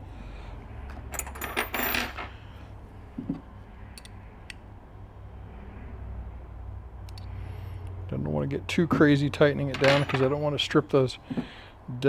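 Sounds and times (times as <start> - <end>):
metal parts clinking: 0.9 - 2.4, 9.6 - 10.4.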